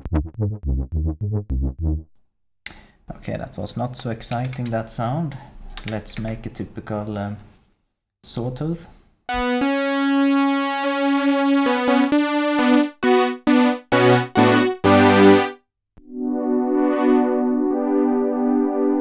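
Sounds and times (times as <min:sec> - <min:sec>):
synthesizer sawtooth chords: 0:00.0 - 0:02.1, 0:09.3 - 0:19.0.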